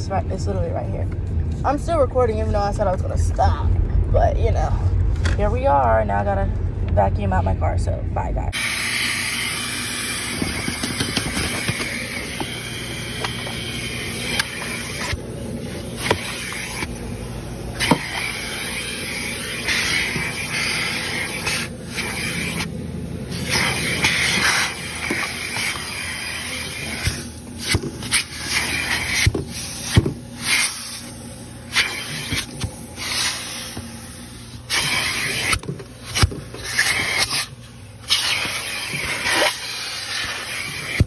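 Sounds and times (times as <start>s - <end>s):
vacuum cleaner running: 8.6s - 41.0s.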